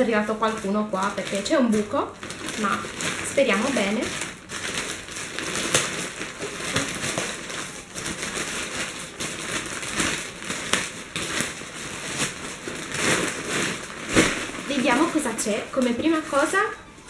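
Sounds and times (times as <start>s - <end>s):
plastic mailer bag crinkling: 0.0s - 17.0s.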